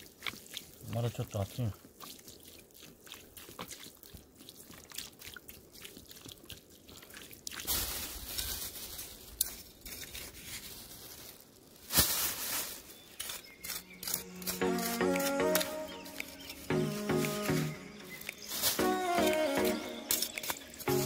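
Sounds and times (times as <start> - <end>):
water pouring onto wet ash: 0.0 - 21.0
trowel scraping into ash: 9.3 - 10.5, 12.9 - 17.2.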